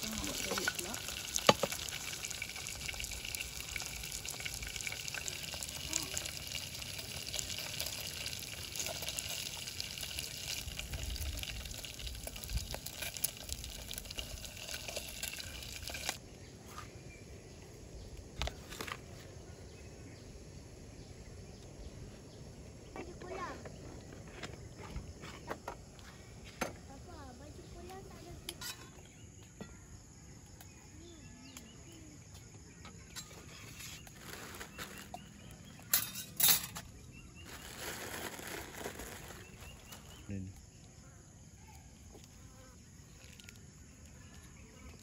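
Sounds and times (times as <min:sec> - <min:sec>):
fish sizzling in a pot: 0:00.0 - 0:16.2.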